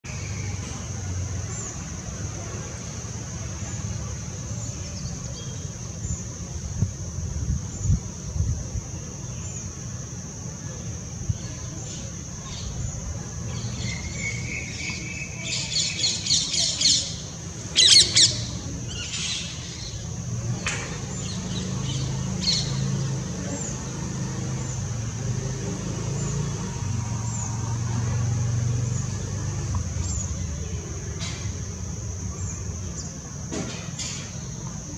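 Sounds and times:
bird twittering and chirping: 0:11.8 - 0:24.9.

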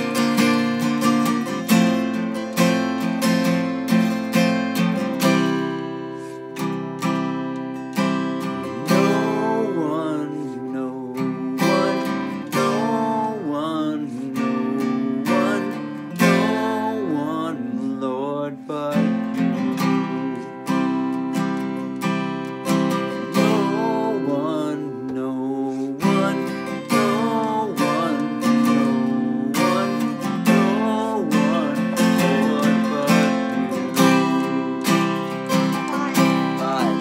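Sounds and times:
man singing: 0:00.0 - 0:03.5, 0:08.1 - 0:37.0
acoustic guitar strumming chords: 0:00.0 - 0:37.0.

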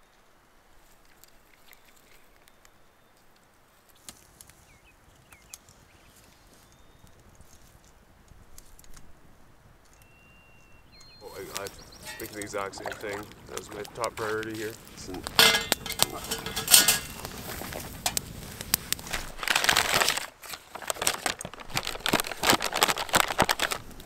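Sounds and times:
campfire crackling and popping: 0:10.9 - 0:24.0.

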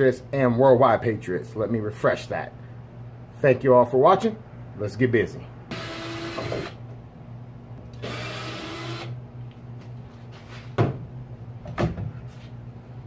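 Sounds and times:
steady low hum: 0:00.0 - 0:13.0
cordless drill running: 0:05.7 - 0:06.8, 0:07.9 - 0:09.2.

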